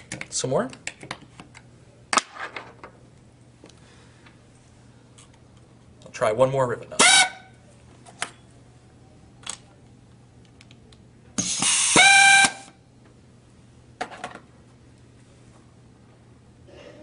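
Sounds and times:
air hiss: 0:11.4 - 0:12.6
air motor whine: 0:11.4 - 0:12.8.

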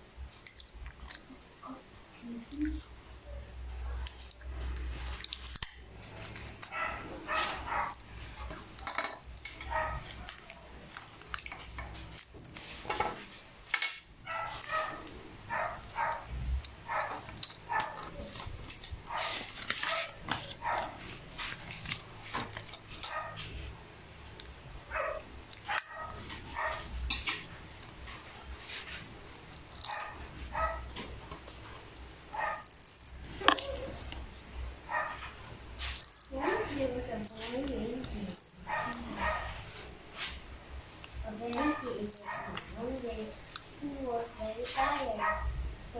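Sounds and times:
dog barking: 0:06.7 - 0:08.5, 0:09.6 - 0:10.7, 0:14.2 - 0:18.4, 0:19.1 - 0:21.1, 0:23.0 - 0:23.4, 0:24.9 - 0:26.9, 0:29.8 - 0:30.9, 0:32.3 - 0:32.6, 0:34.9 - 0:35.3, 0:38.6 - 0:39.6, 0:41.6 - 0:42.7, 0:44.8 - 0:45.6.

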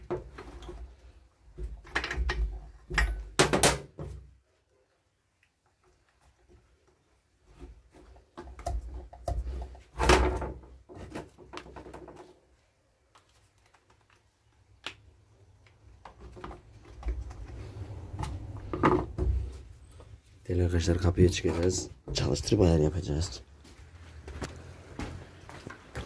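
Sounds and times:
plastic parts clicking and knocking: 0:01.6 - 0:04.2.

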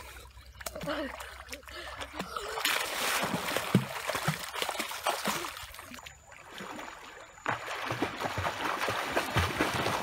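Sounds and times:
water splashing and sloshing: 0:00.0 - 0:10.0.

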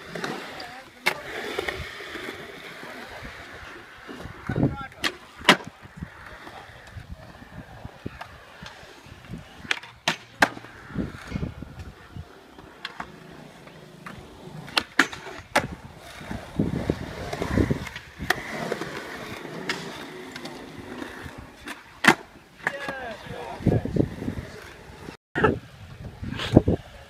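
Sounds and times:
skateboard wheels rolling on concrete: 0:00.0 - 0:27.0
skateboard clacks: 0:08.0 - 0:23.2.

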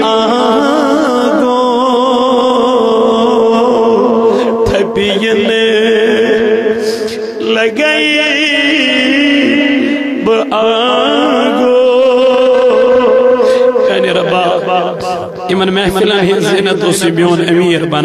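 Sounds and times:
man singing devotional song: 0:00.0 - 0:18.0.

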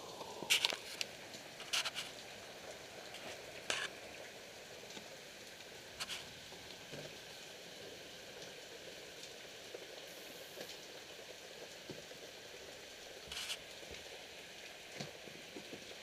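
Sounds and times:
steady rain hiss: 0:00.0 - 0:16.0.

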